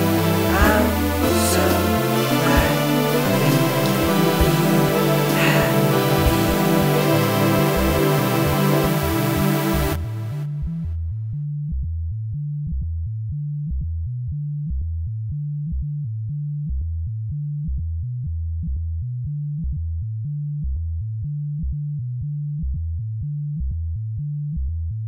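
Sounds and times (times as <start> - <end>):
synthesizer bass line: 0.0 - 11.9.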